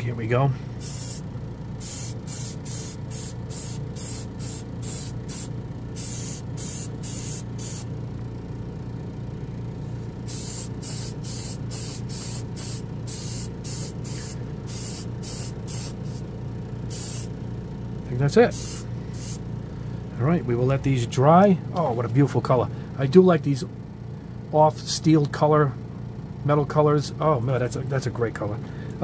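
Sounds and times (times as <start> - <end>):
steady low hum: 0.0 - 29.0
airbrush spraying bursts: 0.8 - 7.9, 10.2 - 16.2, 16.9 - 17.3, 18.5 - 19.4.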